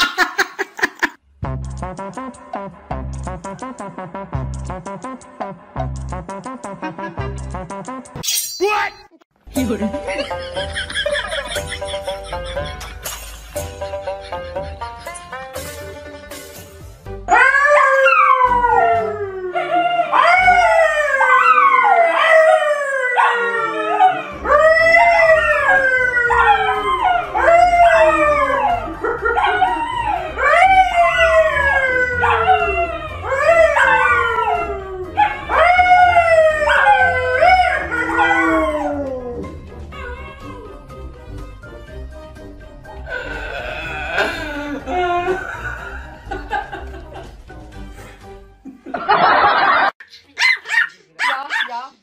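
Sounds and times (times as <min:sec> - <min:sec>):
dogs howling: 0:17.3 - 0:40.8
man howling: 0:23.1 - 0:40.8, 0:43.1 - 0:45.8.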